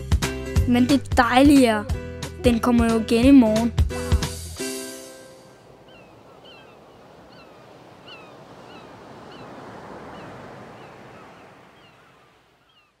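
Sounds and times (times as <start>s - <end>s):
sea surf washing on shore: 4.6s - 13.0s.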